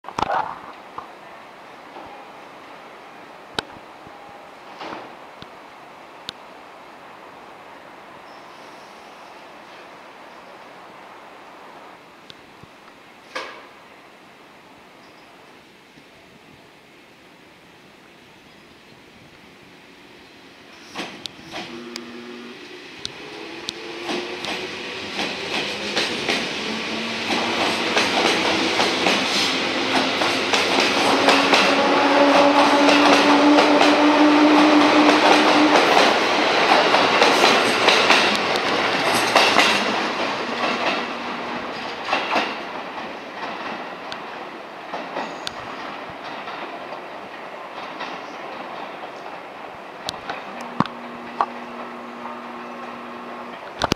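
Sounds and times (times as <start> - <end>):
wheels clicking over rail joints: 27.2 - 52.8.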